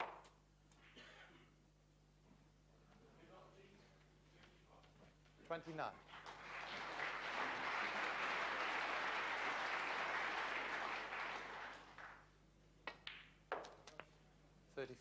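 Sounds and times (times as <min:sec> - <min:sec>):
audience applause: 0:06.0 - 0:12.2
cue and snooker balls clicking: 0:12.8 - 0:14.1.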